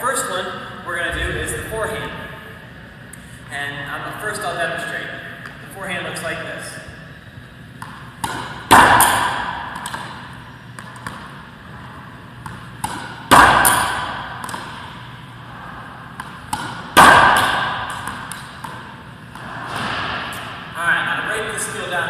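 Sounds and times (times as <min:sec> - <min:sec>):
racquet cracking against ball: 0:07.8 - 0:11.6, 0:12.3 - 0:15.2, 0:16.0 - 0:20.6.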